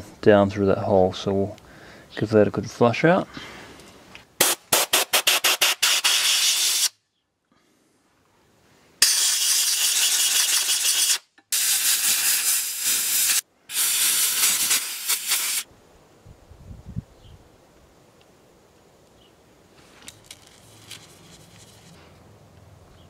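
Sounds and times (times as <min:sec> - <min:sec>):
air blow gun hissing: 0:04.4 - 0:06.9, 0:09.0 - 0:15.7.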